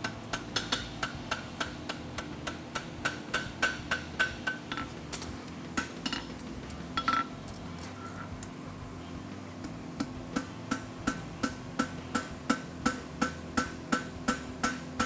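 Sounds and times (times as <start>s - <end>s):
hammer striking metal on anvil: 0.0s - 5.0s, 10.0s - 15.0s.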